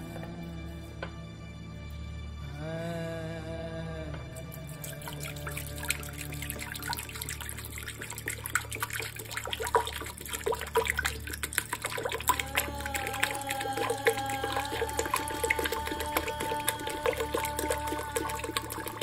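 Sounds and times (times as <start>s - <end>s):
water pouring into metal pot: 4.6s - 19.0s.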